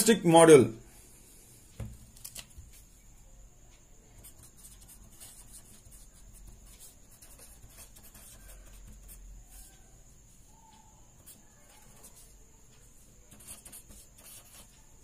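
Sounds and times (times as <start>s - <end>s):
pen scratching on paper: 4.2s - 9.8s, 11.2s - 12.3s, 13.3s - 15.0s.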